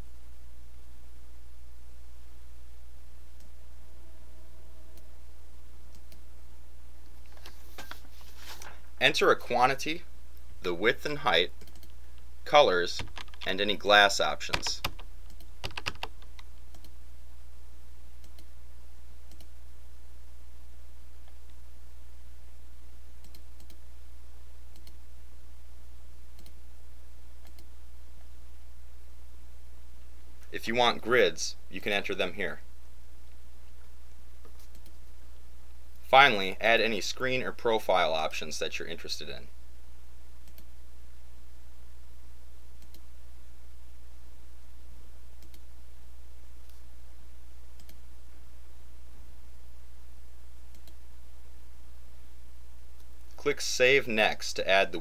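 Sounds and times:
steady low hum: 0.0 - 55.0
computer mouse clicking: 5.9 - 6.2, 11.6 - 12.0, 13.0 - 13.6, 14.5 - 17.0, 18.2 - 18.5, 19.3 - 19.5, 23.2 - 23.8, 24.7 - 25.0, 26.4 - 26.6, 27.4 - 27.7, 34.4 - 35.0, 40.4 - 40.7, 42.8 - 43.1, 45.4 - 45.7, 47.8 - 48.0, 50.7 - 51.0.

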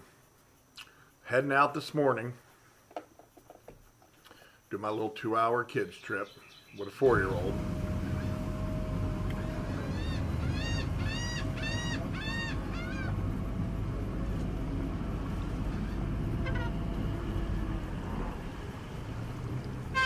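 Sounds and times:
outboard motor running: 7.1 - 20.0
gull calling: 9.4 - 14.2, 15.1 - 17.3.

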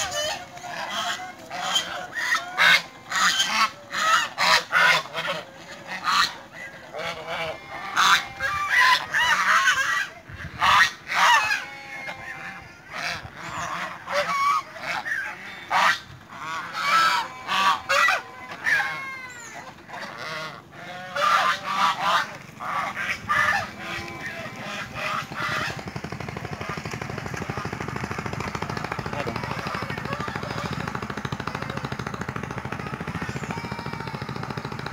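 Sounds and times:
geese honking: 0.0 - 34.9
motor rattle: 21.6 - 34.9.

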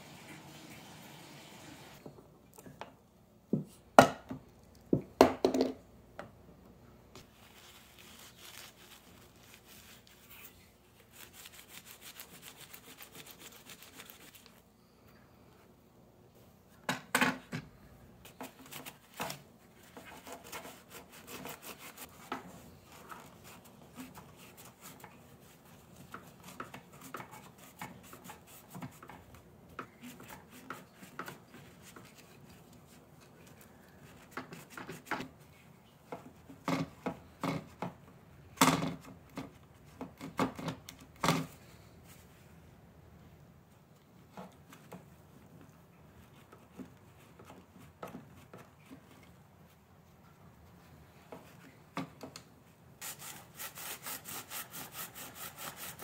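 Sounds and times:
paper towel scrubbing circuit boards: 7.2 - 14.6, 18.3 - 29.2, 53.0 - 56.0.

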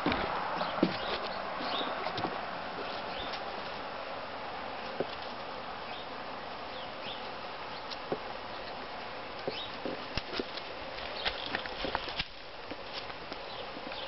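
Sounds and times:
buzzy outdoor hiss: 0.0 - 14.0.

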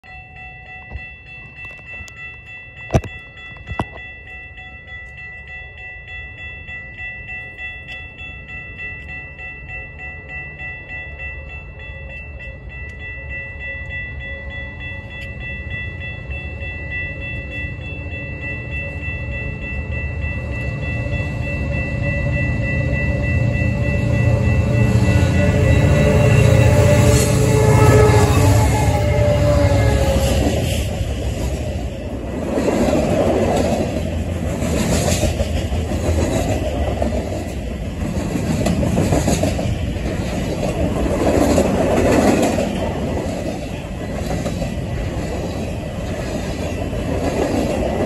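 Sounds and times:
high-pitched ringing: 0.0 - 32.4
freight train rumble: 0.0 - 48.0.

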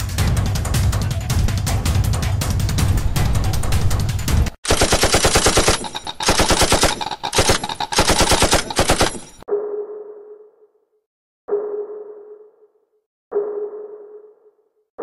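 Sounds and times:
paintball marker firing rapidly: 4.6 - 9.4.

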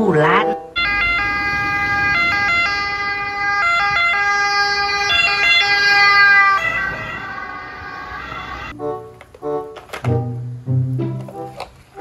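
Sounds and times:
ambulance siren two-tone: 0.4 - 8.8.

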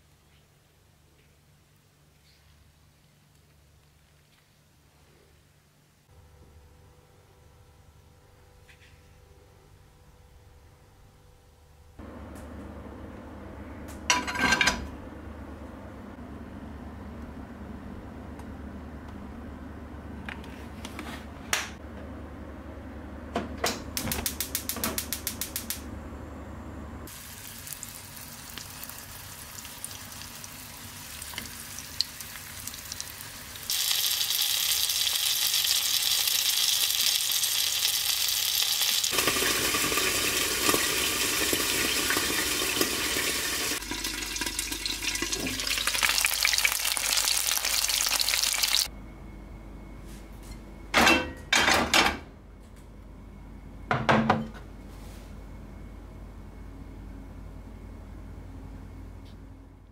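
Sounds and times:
food sizzling in frying pan: 27.1 - 48.9.

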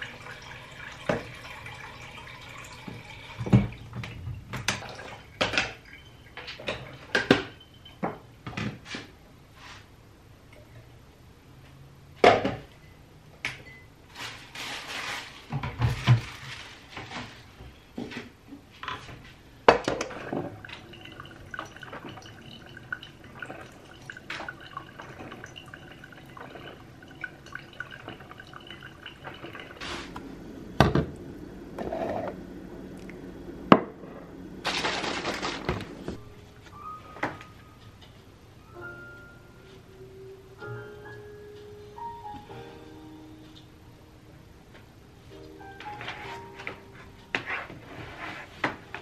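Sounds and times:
tap water running: 0.0 - 7.4, 19.7 - 30.2.

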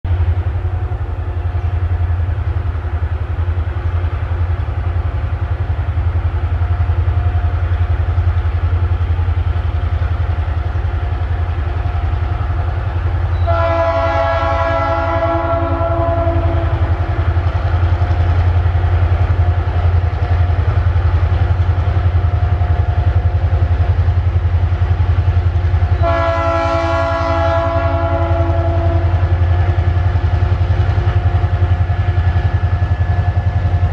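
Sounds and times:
locomotive horn blasts: 13.4 - 17.1, 26.0 - 29.2
steady low rumble: 28.9 - 33.9.

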